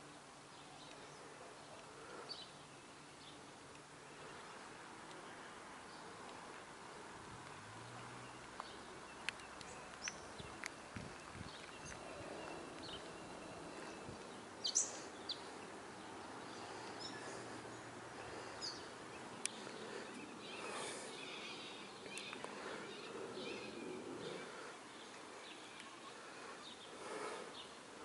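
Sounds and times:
faint clicks: 3.6s - 3.9s, 5.0s - 5.3s, 8.4s - 13.0s, 19.4s - 20.5s, 22.0s - 22.7s.

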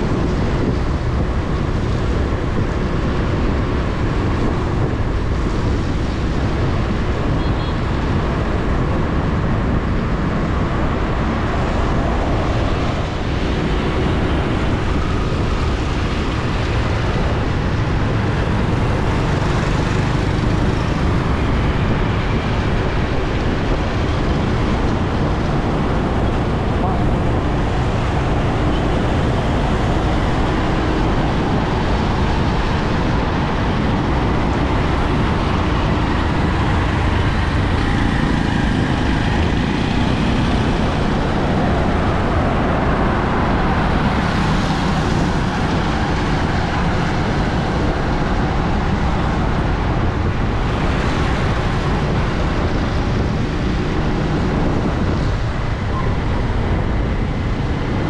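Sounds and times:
road traffic noise: 0.0s - 58.0s.

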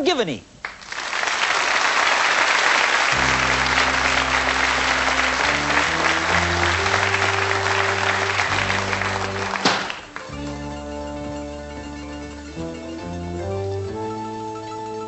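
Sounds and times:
audience applauding: 0.6s - 11.0s
sustained musical chords: 3.1s - 15.0s.

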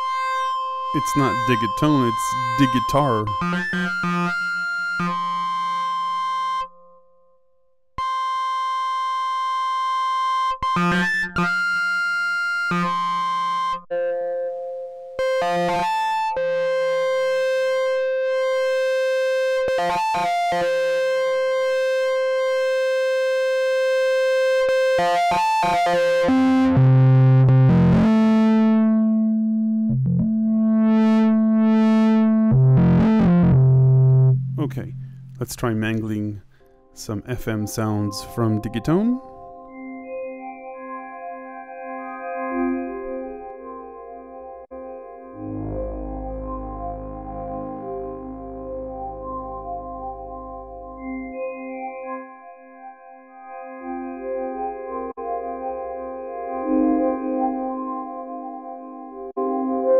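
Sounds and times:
synthesizer sine-wave notes: 0.0s - 7.0s, 8.0s - 36.0s, 37.9s - 59.9s
low buzzy synthesizer notes: 15.2s - 36.4s, 42.9s - 52.3s.

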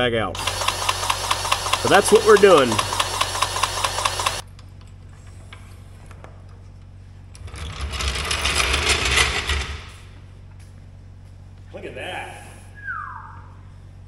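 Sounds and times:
jack rolling on concrete: 0.4s - 4.4s, 7.4s - 10.0s.

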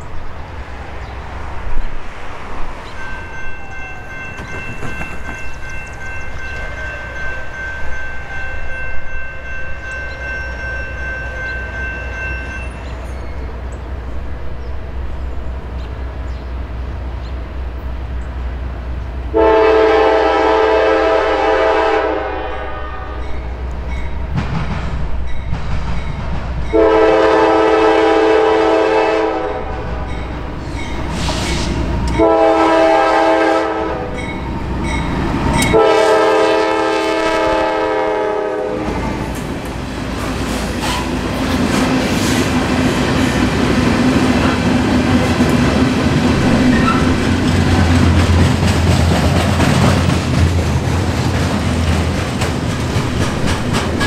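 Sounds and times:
diesel locomotive rumble: 11.2s - 54.0s
train air horn blasts: 19.3s - 23.4s, 26.7s - 30.2s, 31.1s - 34.3s, 35.6s - 39.0s.

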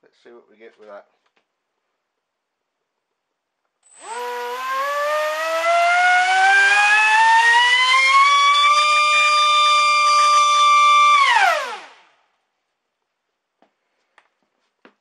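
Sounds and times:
electric motor whine: 3.9s - 12.0s.

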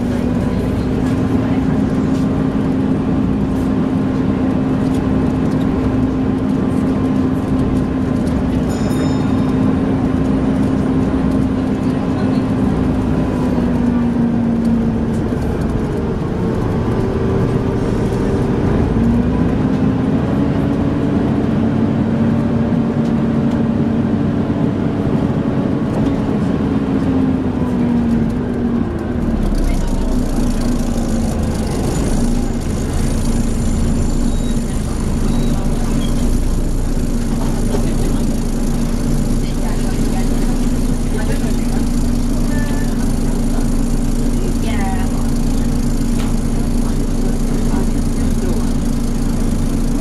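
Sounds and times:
bus cooling fan drone: 0.0s - 50.0s
bus engine: 0.0s - 50.0s
road noise: 0.0s - 50.0s.

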